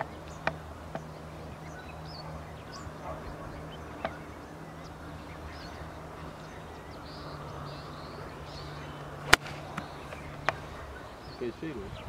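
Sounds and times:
faint bird calls: 0.0s - 12.0s
golf club striking ball: 8.7s - 10.7s.

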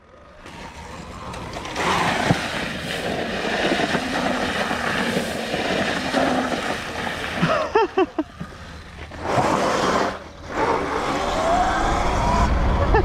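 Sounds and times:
faint motor whine: 0.0s - 7.0s
tyres scrabbling in sandy dirt: 0.4s - 11.0s.

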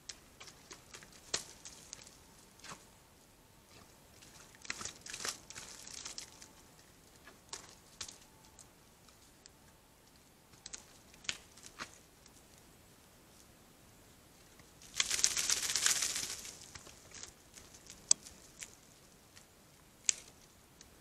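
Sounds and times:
dry leaves and twigs crackling: 0.0s - 13.5s, 14.3s - 20.9s
twigs snapping: 0.1s - 2.8s, 3.7s - 6.6s, 7.2s - 8.6s, 10.5s - 12.4s, 14.8s - 18.8s, 19.4s - 20.5s.

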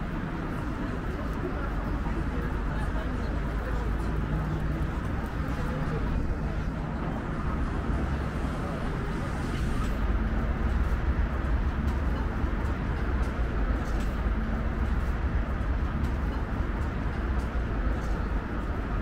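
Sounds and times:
city traffic rumble: 0.0s - 19.0s.

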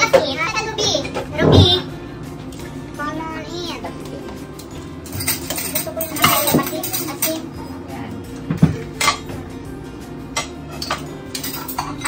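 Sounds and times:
background music: 0.0s - 12.0s
tableware clinking: 4.6s - 7.4s, 8.6s - 9.4s, 10.4s - 12.0s.

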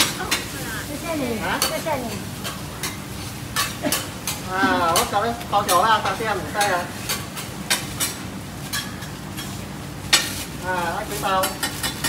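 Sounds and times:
person talking: 0.0s - 2.3s
omelette sizzling in a wok: 0.0s - 12.0s.

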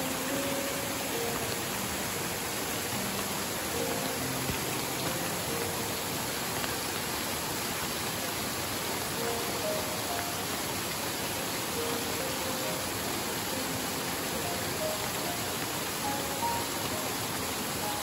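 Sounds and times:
waterfalls splashing: 0.0s - 18.0s.

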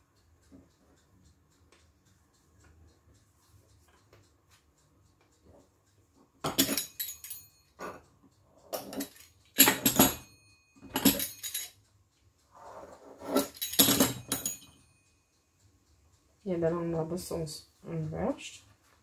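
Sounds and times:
knife scraping on stone countertop: 12.5s - 13.6s.

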